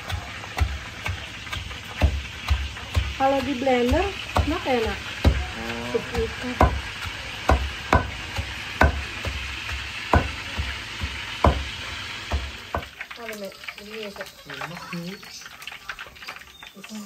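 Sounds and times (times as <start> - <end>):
pestle pounding in stone mortar: 0.0 - 13.0.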